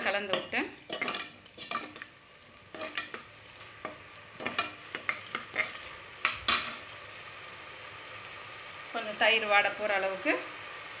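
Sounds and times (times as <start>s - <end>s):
metal spoon scraping a pot: 0.0s - 2.1s, 2.7s - 6.8s
soft frying sizzle: 0.0s - 11.0s.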